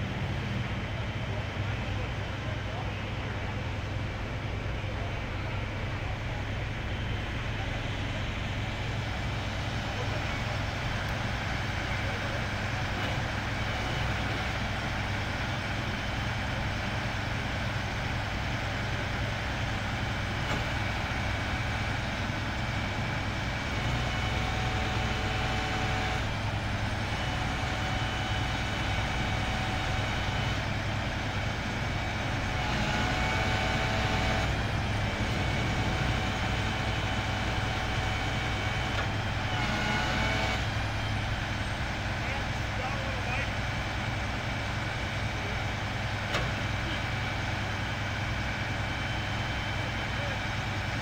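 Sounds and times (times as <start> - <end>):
crane high whine: 0.0 - 51.0
diesel engine running: 0.0 - 51.0.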